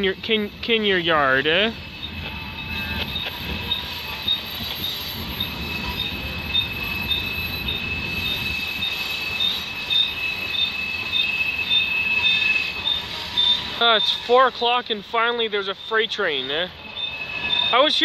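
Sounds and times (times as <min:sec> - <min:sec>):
low rumble of train cars: 0:00.0 - 0:18.0
train wheels steady high squeal: 0:00.0 - 0:18.0
short repeating wheel squeal: 0:00.4 - 0:15.0, 0:15.6 - 0:18.0.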